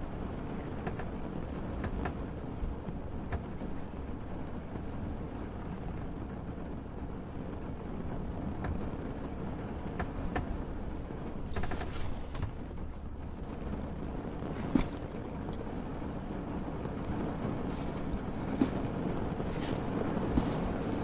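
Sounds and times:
boat engine rumble: 0:00.0 - 0:21.0
light clicks and knocks: 0:00.6 - 0:02.2, 0:08.6 - 0:09.0, 0:09.9 - 0:10.6, 0:11.2 - 0:13.8, 0:14.4 - 0:15.8, 0:17.5 - 0:21.0.

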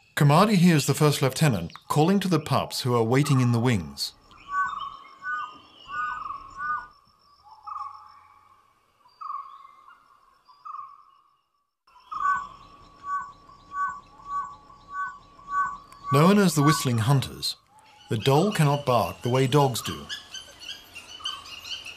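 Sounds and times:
wild dog whistling call: 0:12.1 - 0:16.9.

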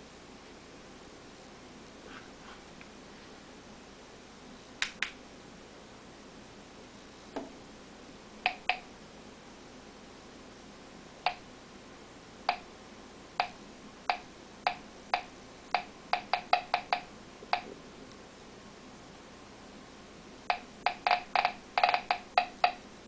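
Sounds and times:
geiger counter clicking: 0:08.4 - 0:08.9, 0:11.2 - 0:11.4, 0:12.5 - 0:12.7, 0:13.4 - 0:17.8, 0:20.5 - 0:22.8.

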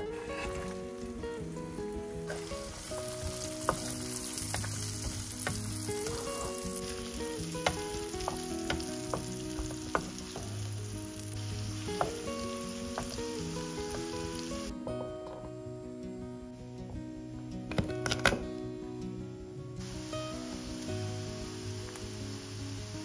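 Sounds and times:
onion sizzling in hot oil: 0:01.9 - 0:14.7, 0:19.8 - 0:23.0
wooden spatula stirring: 0:02.3 - 0:14.3.

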